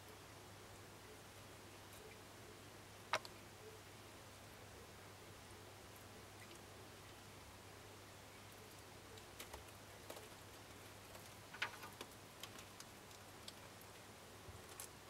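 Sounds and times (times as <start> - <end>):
opossum clicks and ticks: 3.1 - 3.4, 8.5 - 15.0.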